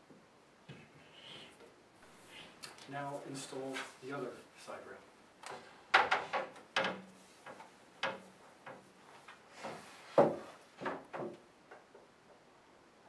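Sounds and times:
wooden crib rail knocking: 5.9 - 8.9, 10.2 - 11.9.

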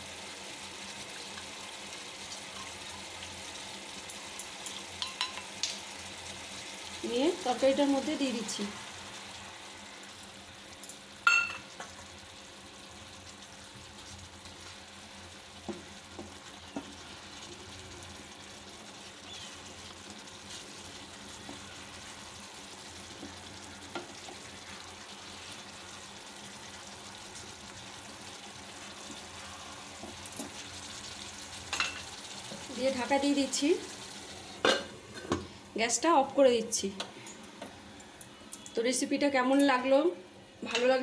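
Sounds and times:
curry simmering and sizzling: 0.0 - 40.8
wooden spatula stirring: 20.4 - 22.1.

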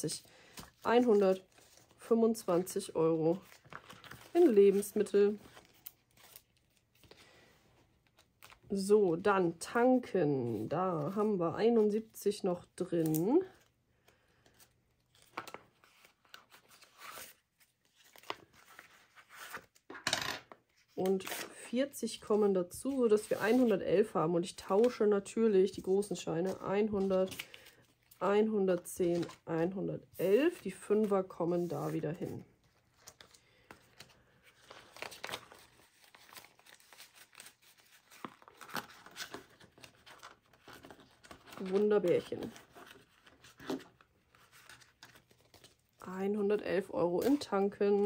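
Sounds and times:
banknotes rustling: 0.0 - 7.5, 22.3 - 45.9
plastic envelope crinkling: 3.3 - 7.2, 32.6 - 45.9.

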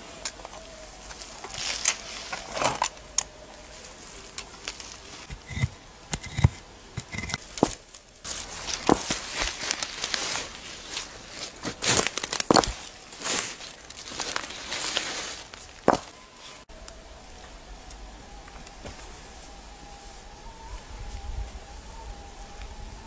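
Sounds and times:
hand tool scraping soil: 3.8 - 16.7
dull thuds: 7.1 - 9.8, 15.3 - 16.2.

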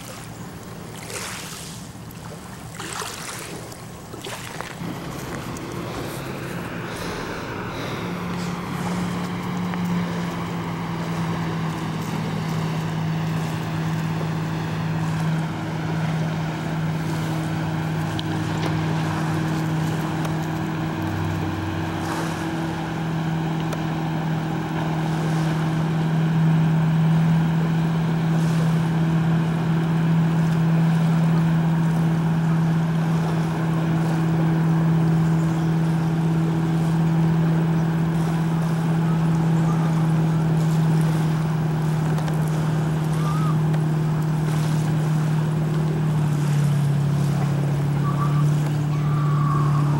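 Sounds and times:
speedboat engine droning: 0.0 - 49.9
water hissing: 2.8 - 20.2.

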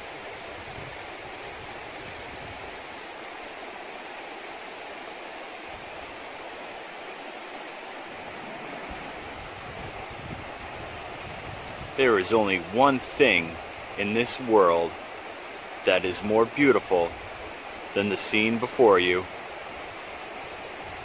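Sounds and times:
river flowing over rocks: 0.0 - 21.0.

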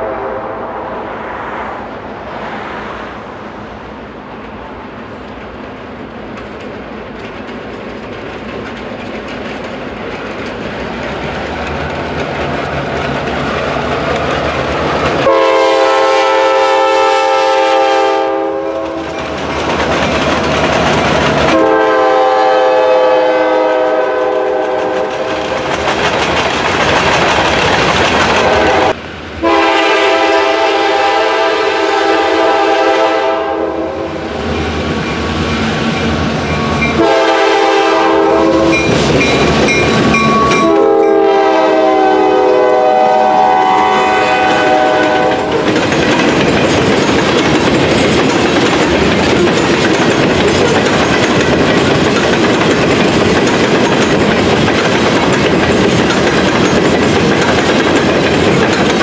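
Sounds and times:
locomotive air horn blasts: 0.0 - 1.0, 15.2 - 19.2, 21.5 - 25.4, 28.4 - 34.3, 36.9 - 38.9, 40.3 - 45.7
diesel train rumble: 0.0 - 59.0.

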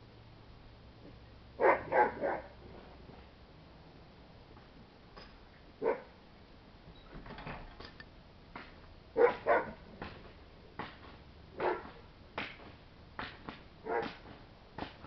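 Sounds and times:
dog barking: 1.6 - 2.6, 5.8 - 6.2, 9.2 - 9.8, 11.6 - 12.0, 13.8 - 14.2.

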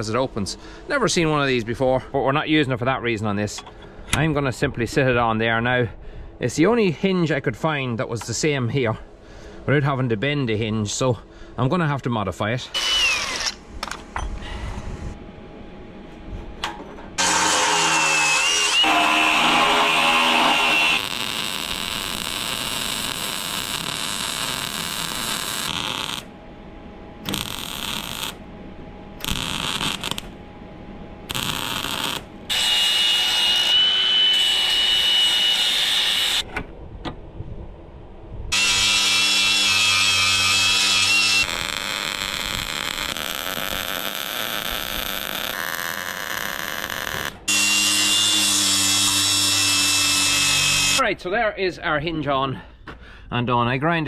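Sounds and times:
angle grinder cutting steel: 17.2 - 26.2, 31.3 - 36.4, 38.5 - 51.0.

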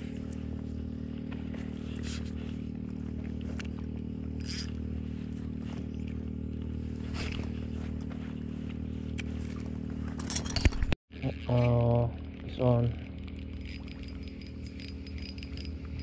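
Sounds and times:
steady low hum: 0.0 - 16.0
fishing line zip: 4.4 - 4.8
fishing rod handling scrapes: 4.4 - 4.8.

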